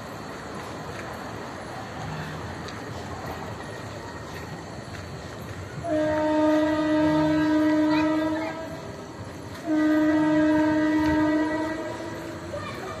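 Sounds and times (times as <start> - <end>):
locomotive horn blasts: 5.8 - 12.5.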